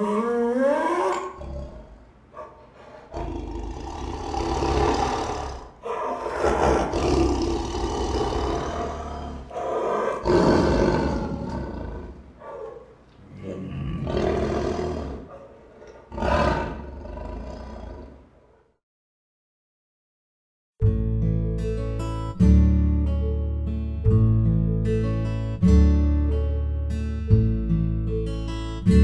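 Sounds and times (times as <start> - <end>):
tiger growling and roaring: 0.0 - 2.0, 3.1 - 12.3, 13.2 - 18.3.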